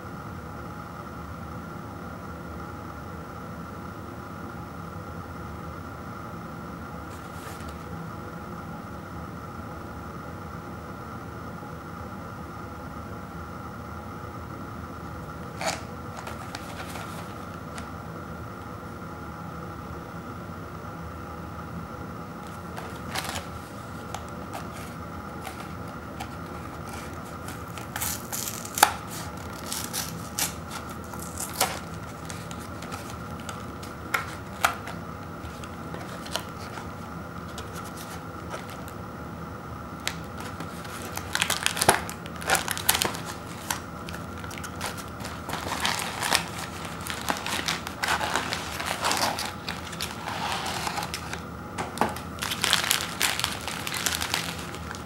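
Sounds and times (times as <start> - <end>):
wrappers crinkling and rustling: 15.4 - 17.9, 22.5 - 39.0, 40.0 - 55.0
cardboard flaps tearing: 22.5 - 38.9, 40.0 - 55.0.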